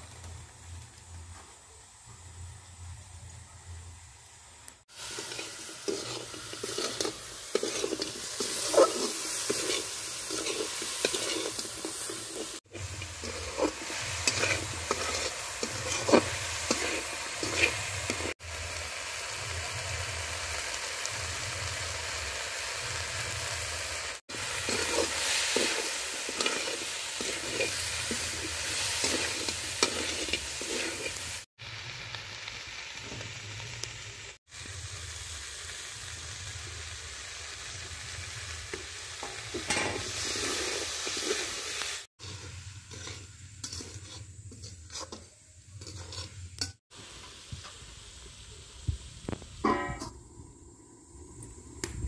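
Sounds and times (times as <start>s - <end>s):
chicken sizzling in a pan: 3.9s - 52.0s
metal spatula scraping and stirring: 4.9s - 18.4s, 24.3s - 31.5s, 39.2s - 41.6s, 42.2s - 46.8s.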